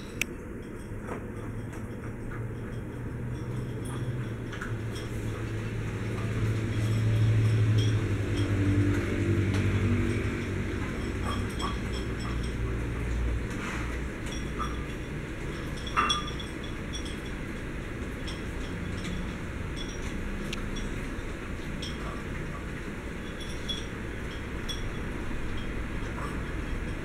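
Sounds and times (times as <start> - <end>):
kibble clinking against bowls: 0.0 - 27.0
low steady hum: 0.0 - 27.0.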